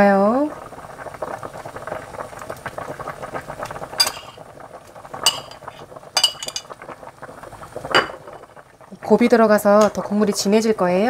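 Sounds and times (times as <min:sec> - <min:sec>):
stew bubbling in a pot: 0:00.0 - 0:11.0
metal utensil clinking on pot: 0:04.0 - 0:04.4, 0:05.2 - 0:06.8.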